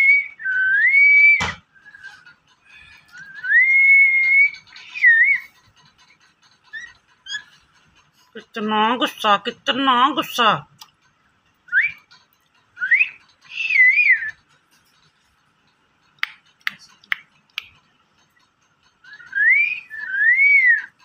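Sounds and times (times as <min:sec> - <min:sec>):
parakeet whistling: 0:03.1 - 0:05.5, 0:12.8 - 0:14.4, 0:19.0 - 0:21.0
beak tapping perch clicks: 0:16.1 - 0:17.9.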